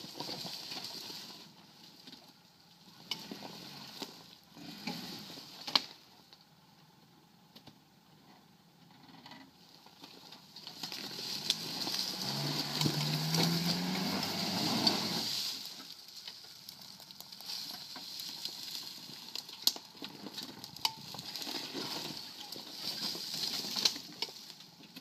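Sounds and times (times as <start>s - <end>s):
tyres crackling through dry leaves: 0.0s - 4.4s, 10.0s - 25.0s
engine pulling under load: 10.2s - 25.0s.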